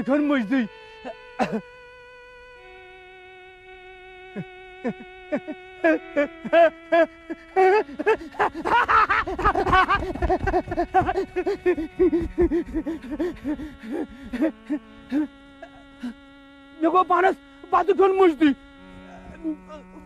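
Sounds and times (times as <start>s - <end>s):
steady held drone: 0.0s - 20.0s
man laughing: 1.0s - 1.6s, 4.4s - 16.2s, 19.0s - 20.0s.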